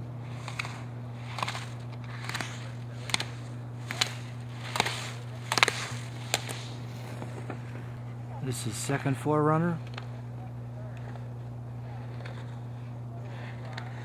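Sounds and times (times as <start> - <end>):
steady low hum: 0.0 - 14.0
ski edges scraping snow: 0.3 - 9.2.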